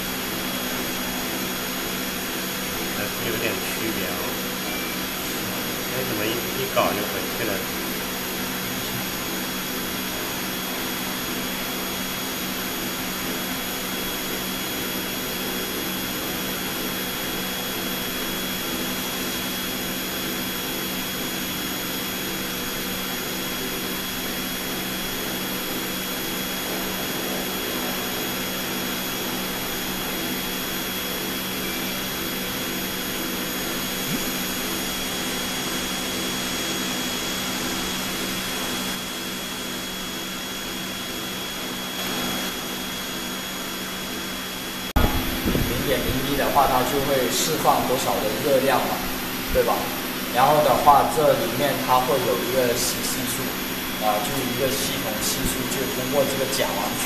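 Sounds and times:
blower whirring hum: 0.0 - 57.0
thin high tone: 3.1 - 7.4.

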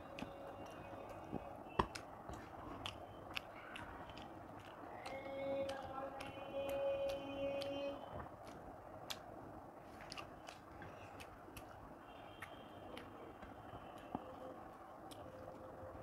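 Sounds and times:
person chewing: 0.0 - 16.0.

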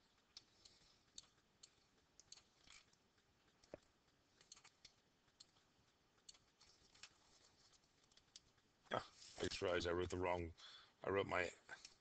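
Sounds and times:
computer mouse clicks: 0.0 - 8.7.

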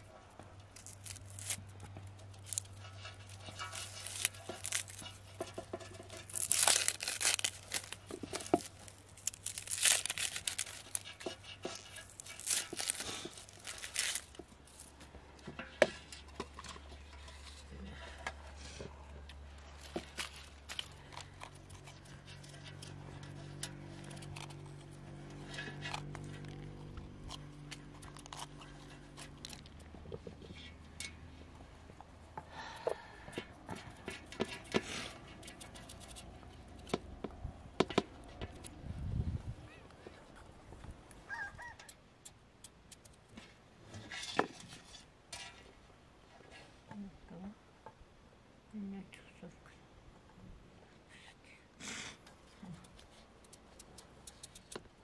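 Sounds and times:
rustling and tearing: 0.6 - 15.0, 19.6 - 30.3.

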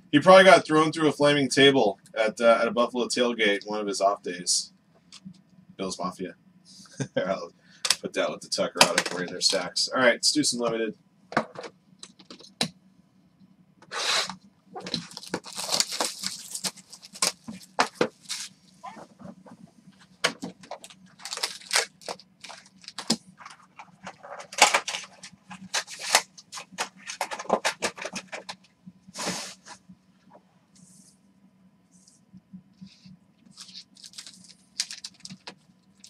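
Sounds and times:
plastic wrapping tearing and crumpling: 14.8 - 19.1, 20.6 - 28.5, 33.5 - 36.0.

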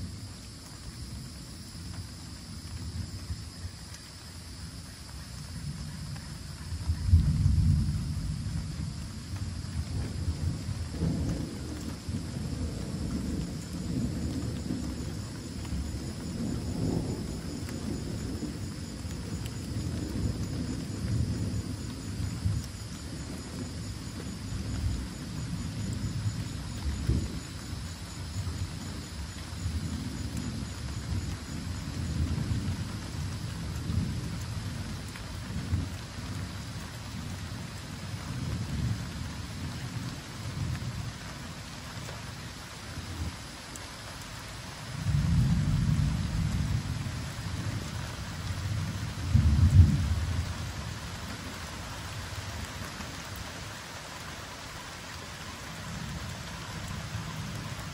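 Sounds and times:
gentle rain falling: 0.0 - 57.9
thunder rumbling: 5.6 - 41.5, 44.8 - 53.5.

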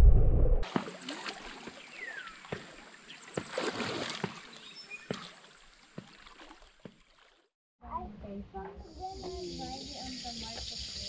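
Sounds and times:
river water lapping: 0.6 - 7.6.

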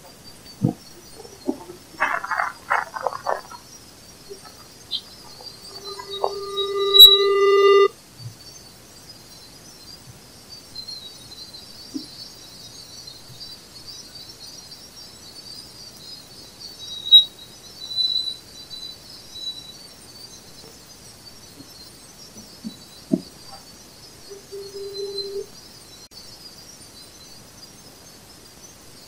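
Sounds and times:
faint chirps: 0.0 - 29.0
steady high hiss: 0.0 - 29.0
brief whistles: 5.6 - 7.9, 24.3 - 25.5
short sharp tone: 5.7 - 7.9.

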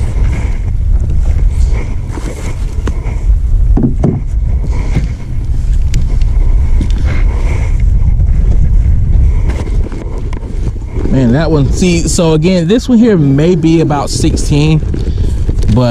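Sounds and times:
gear clicking and rustling: 0.0 - 15.9
wind buffeting microphone: 0.0 - 15.9.

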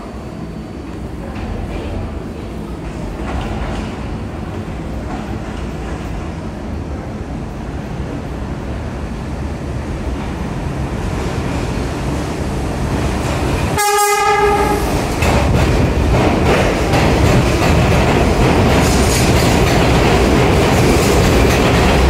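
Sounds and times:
subway train rumbling: 0.0 - 22.0
train horn blast: 13.8 - 14.9.

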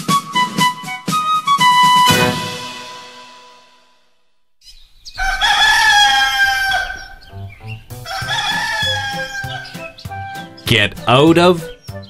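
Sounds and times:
light background music: 0.0 - 4.0, 6.6 - 12.0
rooster crowing: 5.0 - 10.5.

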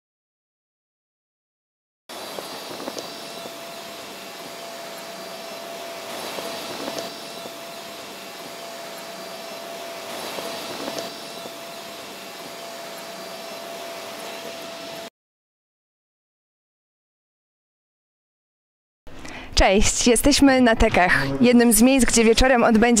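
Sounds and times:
steady rushing noise: 2.1 - 15.1.

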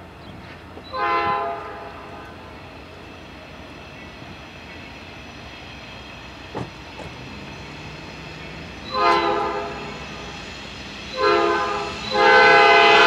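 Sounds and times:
train rumble: 0.0 - 13.0
locomotive air horn blast: 0.9 - 2.2, 8.8 - 10.2, 11.1 - 13.0
short thump: 6.5 - 7.2.

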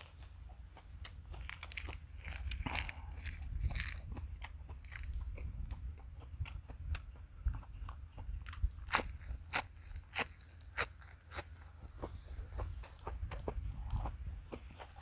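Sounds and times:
crunchy lettuce chewing: 0.0 - 15.0
low wind rumble on microphone: 1.4 - 10.0, 11.7 - 15.0.

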